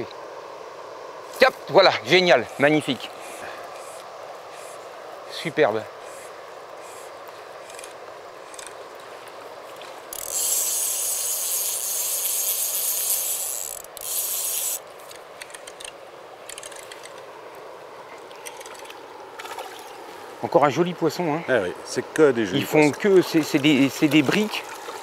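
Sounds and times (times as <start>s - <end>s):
fishing reel ratchet buzzing: 10.1s - 14.8s.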